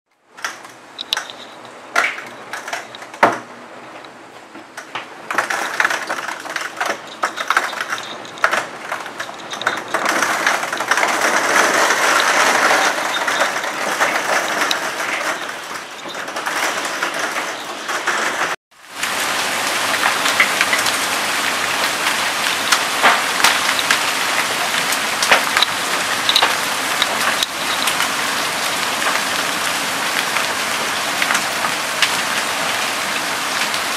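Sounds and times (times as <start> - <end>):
dense steady downpour: 0.1 - 33.9
hail clattering: 0.3 - 3.5, 4.8 - 33.9.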